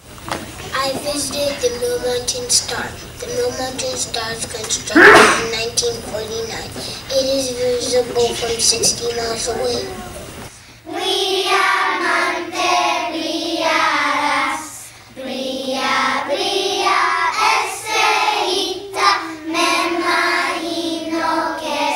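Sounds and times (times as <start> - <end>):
children singing in unison: 10.8 - 21.9.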